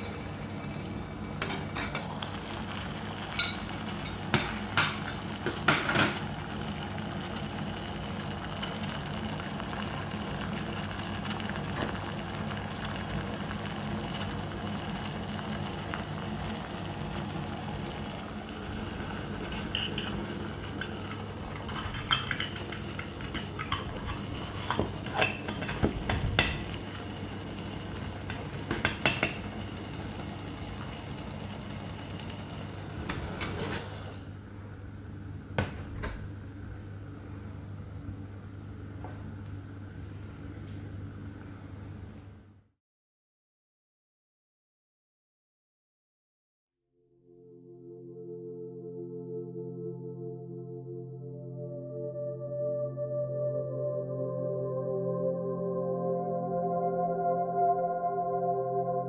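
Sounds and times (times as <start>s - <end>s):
metal cookware clinking: 1.4s - 2.1s, 3.3s - 4.6s, 19.7s - 20.2s, 20.8s - 26.8s.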